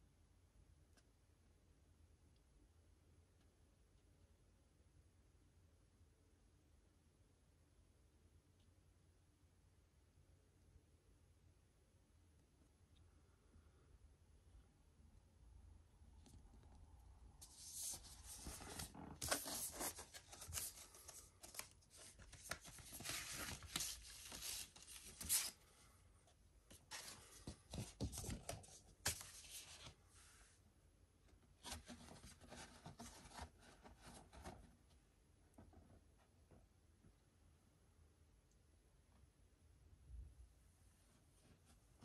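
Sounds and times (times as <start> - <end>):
record packaging rustling: 17.4 - 25.6.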